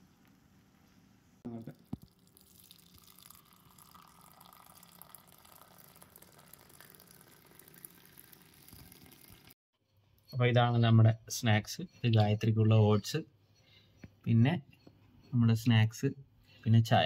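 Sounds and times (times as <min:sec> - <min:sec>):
tea pouring into cup: 0:01.7 - 0:09.6.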